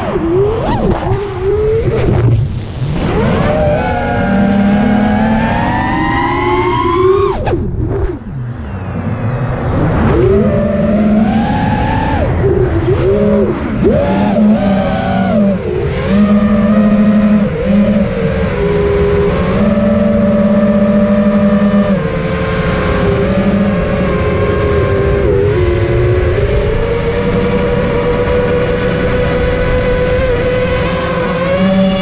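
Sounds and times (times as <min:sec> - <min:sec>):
drone motors whining: 0:00.0 - 0:32.0
rushing wind: 0:00.0 - 0:32.0.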